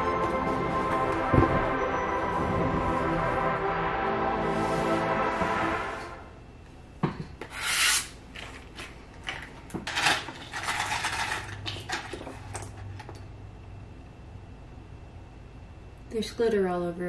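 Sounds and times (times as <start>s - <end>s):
plastic crinkling and rustling: 8.3s - 13.2s.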